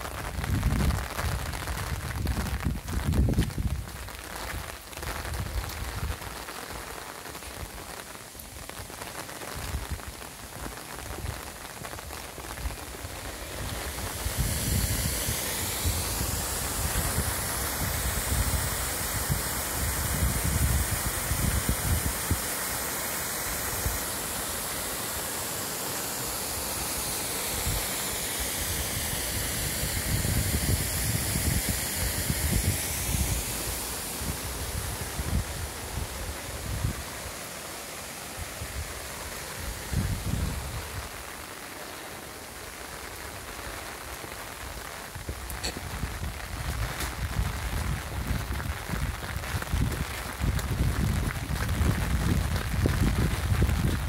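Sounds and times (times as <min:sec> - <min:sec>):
waterfall rushing: 0:06.2 - 0:47.3.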